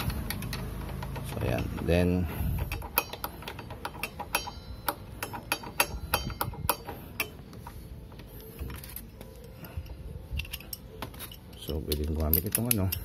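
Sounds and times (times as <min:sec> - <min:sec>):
socket wrench clicking: 0:00.0 - 0:01.9, 0:02.6 - 0:07.4, 0:10.3 - 0:13.0.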